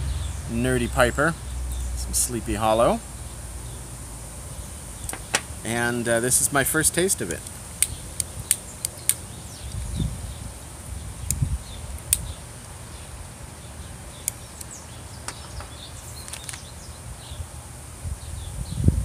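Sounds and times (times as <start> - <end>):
sharp clicks: 5.0 - 5.5.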